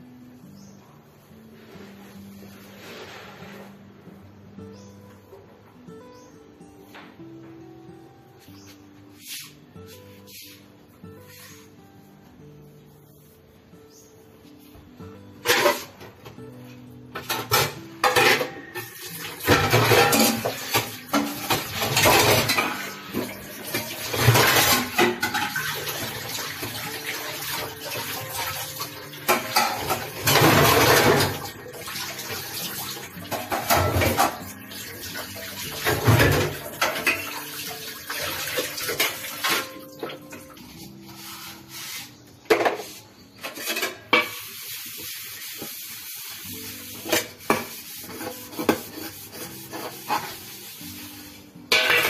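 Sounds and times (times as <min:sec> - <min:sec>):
dishes clinking: 0:17.2 - 0:26.2, 0:29.3 - 0:31.5, 0:42.5 - 0:44.5, 0:51.7 - 0:52.0
water splashing and running: 0:18.9 - 0:40.2.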